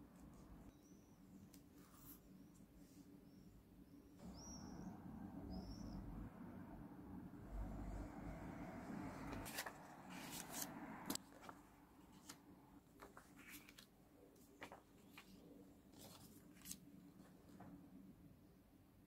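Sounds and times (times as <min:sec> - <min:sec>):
paper taps and rustles: 0:12.2 - 0:15.4.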